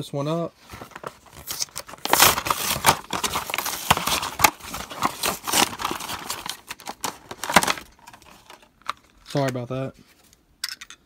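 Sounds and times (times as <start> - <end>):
plastic crinkling and crackling: 0.6 - 9.5
cardboard ripping: 0.7 - 8.2.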